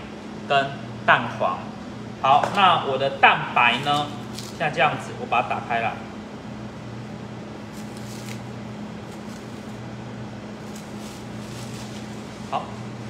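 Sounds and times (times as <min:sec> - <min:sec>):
steady low hum: 0:00.0 - 0:13.0
cling film crinkling: 0:03.7 - 0:04.7, 0:07.6 - 0:09.8, 0:10.6 - 0:12.8.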